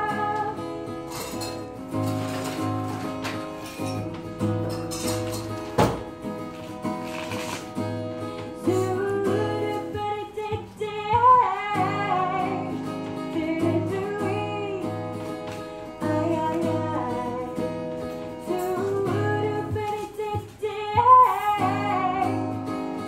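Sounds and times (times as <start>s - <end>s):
woman singing: 0.0s - 1.3s, 8.4s - 23.0s
strummed acoustic guitar: 0.0s - 23.0s.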